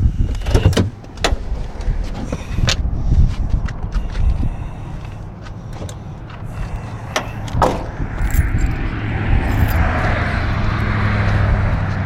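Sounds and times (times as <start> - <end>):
car door clicks and clacks: 0.3 - 2.8, 5.7 - 6.5, 7.1 - 8.5
phone handling rumble: 5.3 - 8.8.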